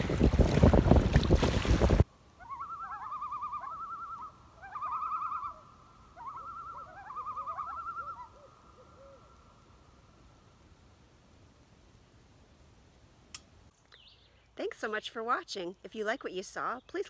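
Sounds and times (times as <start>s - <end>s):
wind buffeting microphone: 0.0s - 2.1s
loons tremolo calls: 2.4s - 9.6s.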